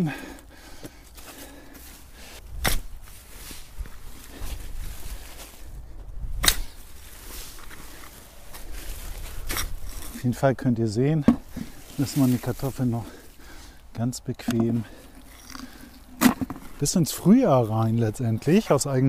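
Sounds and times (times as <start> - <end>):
digging tool striking soil: 2.5 - 3.2, 6.4 - 7.0, 9.2 - 10.2, 14.4 - 16.9.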